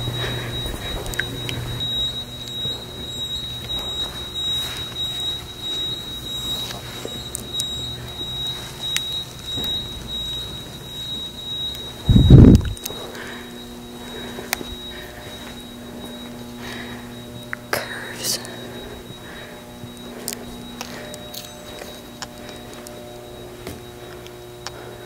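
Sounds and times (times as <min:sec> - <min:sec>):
footsteps: 0:00.0 - 0:11.3, 0:18.4 - 0:24.3
high-pitched alarm tone: 0:00.0 - 0:25.0.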